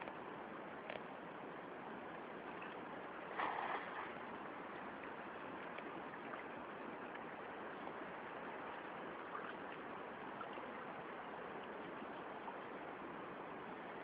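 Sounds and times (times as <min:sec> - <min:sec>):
river water rushing: 0:01.8 - 0:14.0
faint small splashes: 0:02.5 - 0:07.4.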